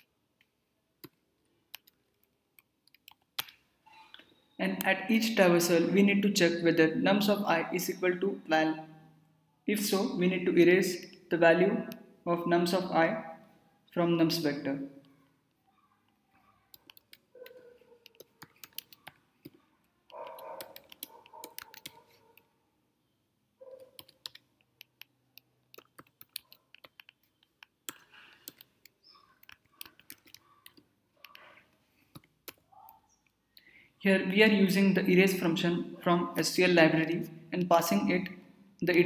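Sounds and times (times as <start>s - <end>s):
faint keyboard typing: 0.0s - 4.3s, 15.0s - 22.5s, 23.6s - 33.4s.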